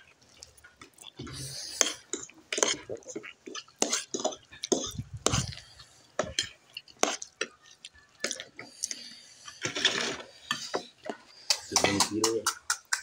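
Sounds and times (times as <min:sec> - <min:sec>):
noisy rustling: 0:04.7 - 0:05.8.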